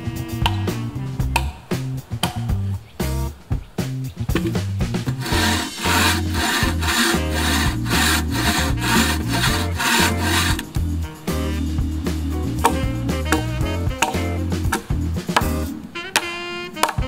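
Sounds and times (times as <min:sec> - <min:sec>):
background music: 0:00.0 - 0:17.0
bow saw cutting wood: 0:05.2 - 0:10.7.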